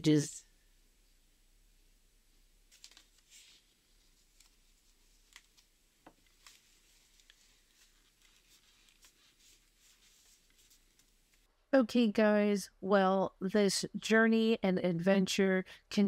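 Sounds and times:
paper rustling: 2.6 - 11.5.

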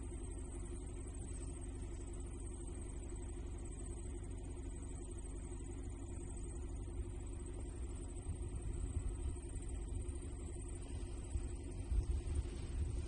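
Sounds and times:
wind buffeting the microphone: 11.1 - 13.0.

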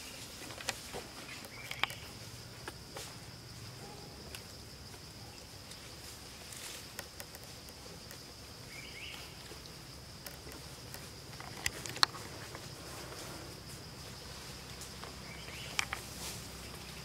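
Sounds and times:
insects droning: 0.0 - 17.0
twigs and leaves rustling: 0.0 - 17.0.

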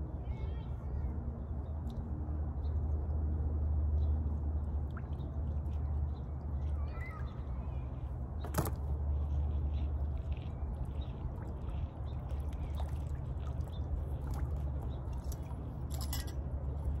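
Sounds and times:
water dripping and trickling: 9.1 - 17.0.

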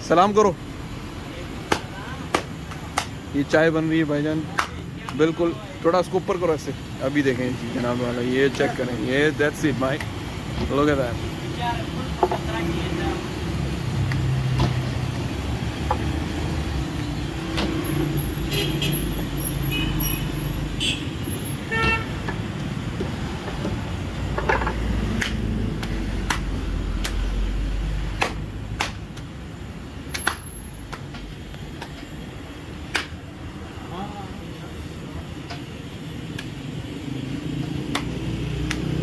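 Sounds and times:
traffic rumble: 0.0 - 39.0
car horns tooting: 18.2 - 22.3.

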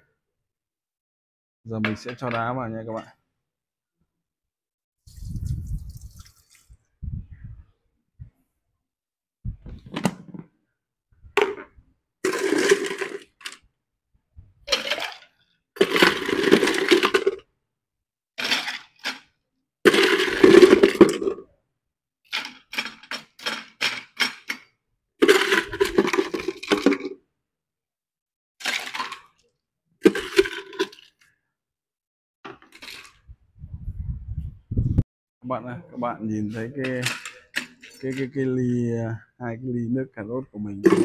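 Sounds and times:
ice scoop clattering ice: 12.2 - 13.6, 14.7 - 17.4, 18.4 - 19.3, 19.9 - 21.4, 22.3 - 27.2, 28.6 - 29.4, 30.0 - 31.2, 32.6 - 33.2.

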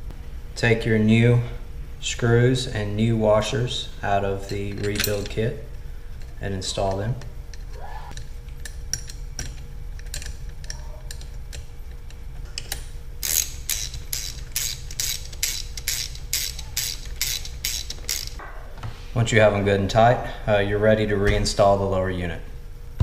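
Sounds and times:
hand ratchet clicking: 7.5 - 11.7, 12.6 - 18.4
metal clicks of screws: 7.5 - 11.7.

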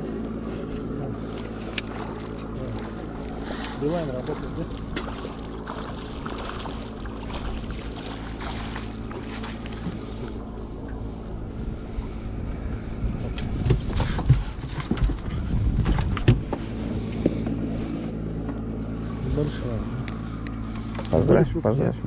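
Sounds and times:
outboard motor idling hum: 0.0 - 22.0
fish splashing in water: 1.7 - 10.2
knocks and thumps on boat: 4.1 - 10.1, 12.6 - 17.6.

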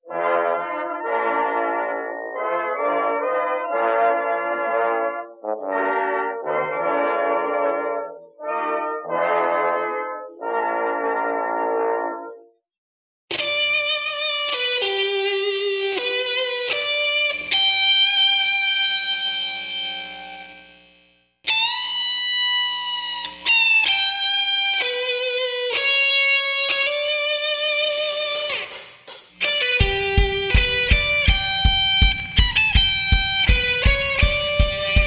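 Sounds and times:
instrumental melody of held notes: 0.1 - 12.4, 13.3 - 20.6, 29.4 - 35.0
steady drum beat: 28.4 - 35.0.

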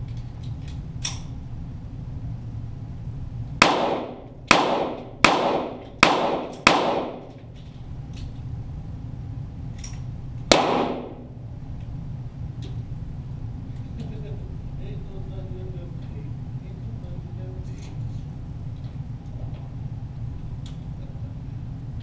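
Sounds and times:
pistol shots echoing: 3.6 - 7.4, 10.5 - 11.3.

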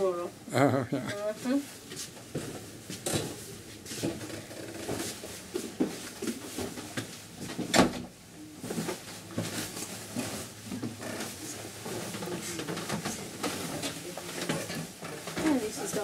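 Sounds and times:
footsteps on wooden stairs: 1.9 - 7.8, 8.6 - 16.0
wooden creaks: 4.0 - 5.1, 10.7 - 11.4.

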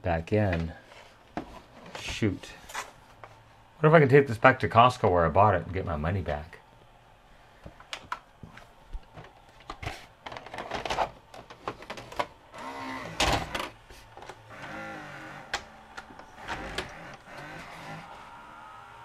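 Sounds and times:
plastic clicks and clunks: 7.7 - 12.4, 13.0 - 14.7
cassette motor whirring: 7.8 - 19.0.

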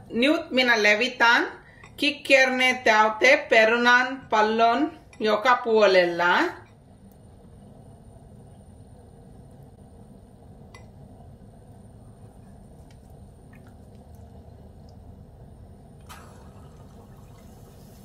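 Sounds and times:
steady low hum: 1.6 - 18.0
oil sizzling: 6.9 - 18.0
splash into hot oil: 16.0 - 18.0.

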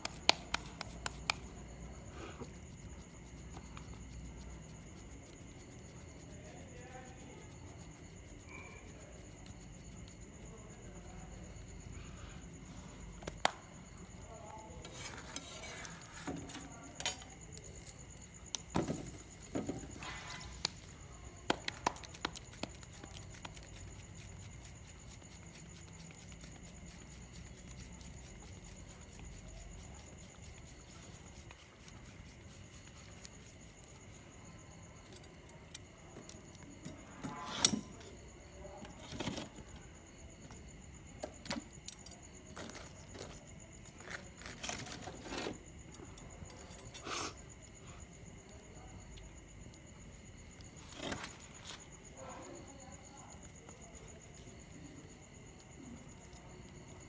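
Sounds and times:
handling noise making flatbread: 12.1 - 22.8.

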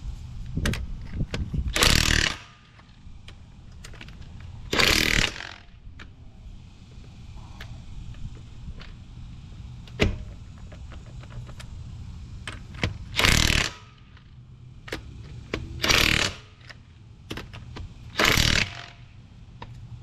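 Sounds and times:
impact wrench hammering: 1.7 - 2.9, 4.7 - 5.8, 12.5 - 19.1
socket clicking on nuts: 9.9 - 11.8, 12.4 - 19.8.

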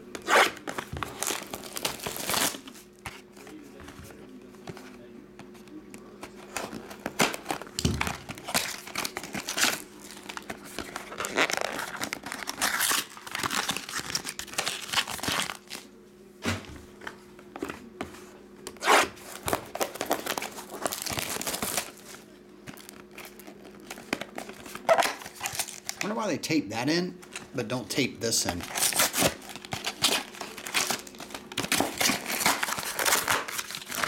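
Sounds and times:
cardboard tearing: 0.2 - 2.8, 6.4 - 15.8, 18.8 - 22.1, 22.8 - 26.1, 28.5 - 34.0
foil wrappers crinkling: 0.2 - 4.2, 6.2 - 15.9, 19.1 - 26.3, 27.2 - 34.0.

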